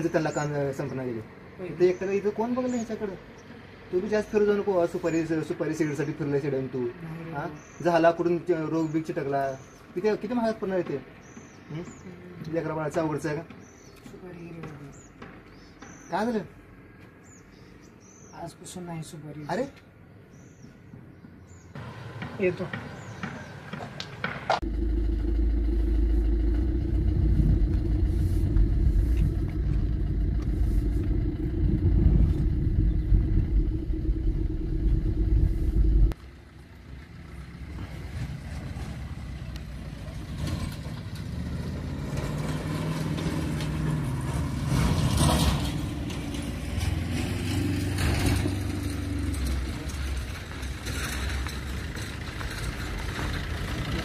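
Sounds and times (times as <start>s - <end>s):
car engine and road rumble: 21.8s - 54.0s
car engine passing outside: 21.8s - 54.0s.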